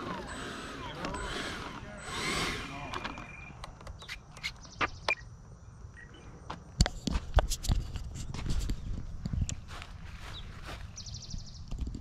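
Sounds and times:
footsteps on pavement: 8.3 - 11.1.

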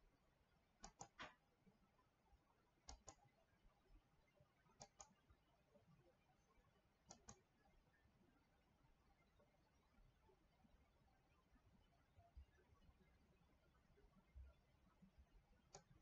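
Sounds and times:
faint computer mouse clicks: 0.8 - 1.4, 2.8 - 3.2, 4.7 - 5.2, 7.1 - 7.5, 15.7 - 16.0.

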